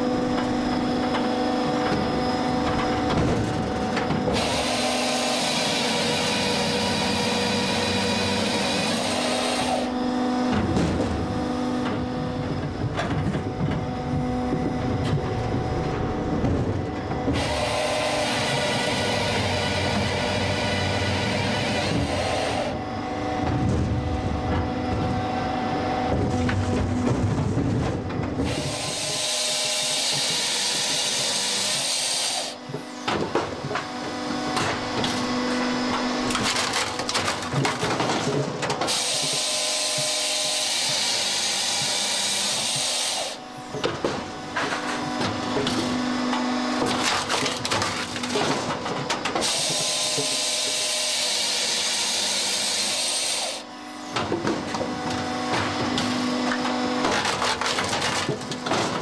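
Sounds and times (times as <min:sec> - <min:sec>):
machine drive humming: 0:00.0 - 0:59.0
saw cutting log with high hiss: 0:04.3 - 0:09.9, 0:28.5 - 0:32.6, 0:38.9 - 0:43.4, 0:49.4 - 0:53.7
wood cracking and splintering: 0:32.6 - 0:53.5, 0:54.1 - 0:59.0.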